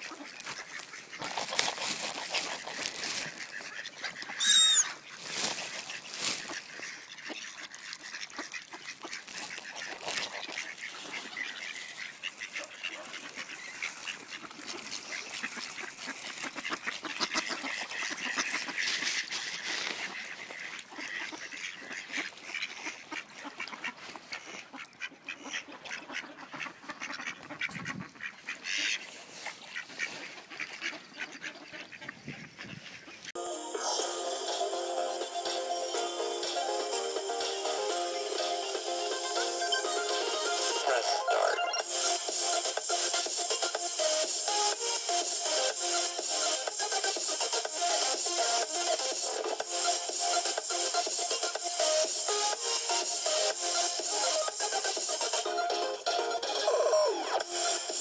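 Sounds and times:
ducks quacking: 0:00.0 - 0:58.0
wavering high-pitched duck call: 0:04.2 - 0:05.0.

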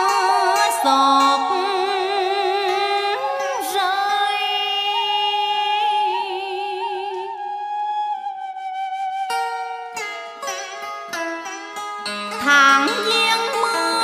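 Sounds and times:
woman chanting a poem: 0:12.3 - 0:14.0.

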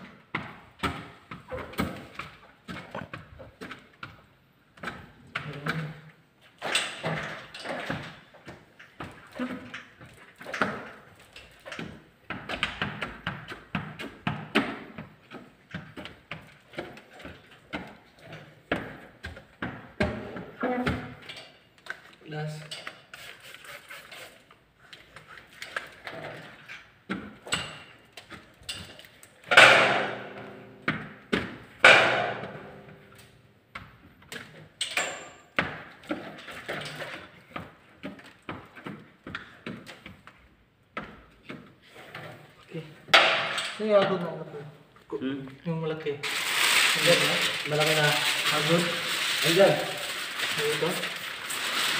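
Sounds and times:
squeegee swishing on glass: 0:23.0 - 0:25.8.

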